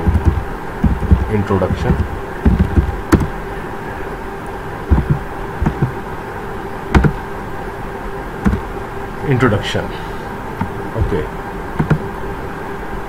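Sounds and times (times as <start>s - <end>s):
soft low thumps: 0.0s - 3.4s, 4.9s - 6.0s, 6.9s - 7.2s, 8.4s - 8.7s
electrical buzzing hum: 0.0s - 13.0s.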